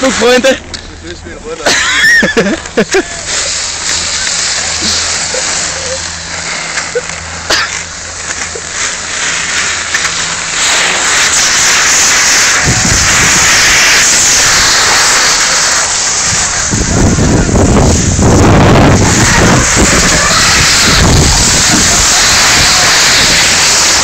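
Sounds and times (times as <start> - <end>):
low wind rumble: 0.0 - 24.0
skis hissing over snow: 0.0 - 24.0
wind buffeting microphone: 11.3 - 24.0.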